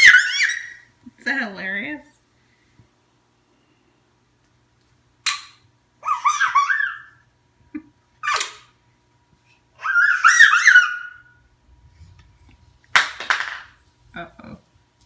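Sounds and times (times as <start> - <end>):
toddler squealing: 0.0 - 0.9, 6.0 - 7.2, 9.8 - 11.4.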